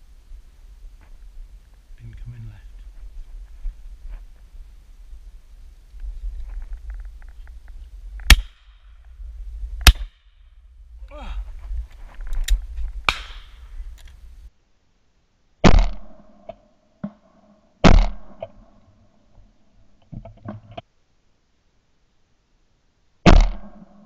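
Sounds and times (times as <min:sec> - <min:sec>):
wind rumbling on microphone: 0:00.0 - 0:14.5
shotgun shots: 0:08.2 - 0:08.7, 0:09.8 - 0:10.2, 0:15.6 - 0:16.3, 0:17.8 - 0:18.5, 0:23.3 - 0:24.0.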